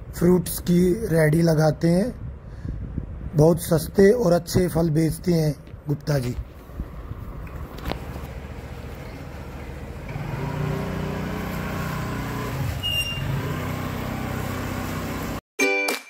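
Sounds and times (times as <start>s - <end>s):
motorcycle riding up: 7.0s - 15.4s
scooter pulling away: 7.5s - 15.4s.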